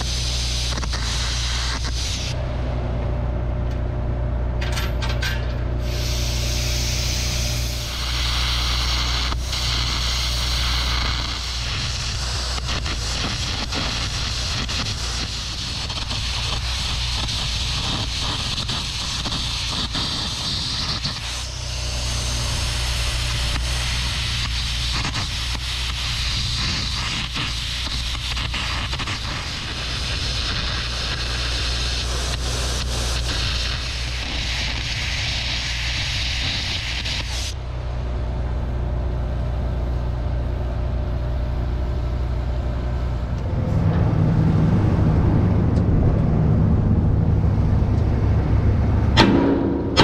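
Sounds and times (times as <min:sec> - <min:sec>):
arc crackling and sputtering: 0:00.0 - 0:02.4, 0:05.8 - 0:37.6
compressed air hissing: 0:00.0 - 0:02.4, 0:05.8 - 0:37.6
low hum: 0:00.0 - 0:27.1, 0:37.6 - 0:50.0.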